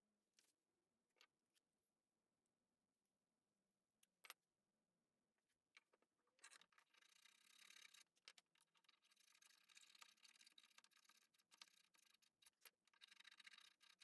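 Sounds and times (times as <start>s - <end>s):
small clicks: 4.0s - 4.4s.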